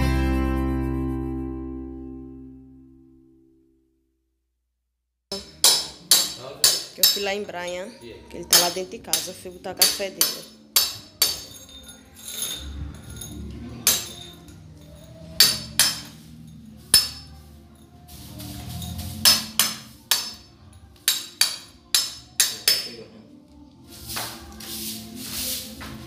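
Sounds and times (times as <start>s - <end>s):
hammer blows chipping tiles: 5.3s - 7.5s, 8.4s - 17.4s, 18.3s - 23.0s.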